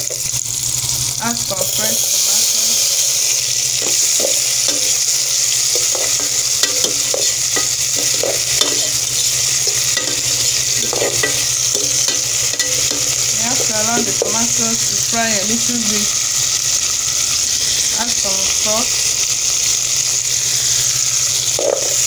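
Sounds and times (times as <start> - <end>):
vegetables sizzling in hot oil: 0.0 - 22.0
spatula scraping a metal pot: 2.0 - 14.6.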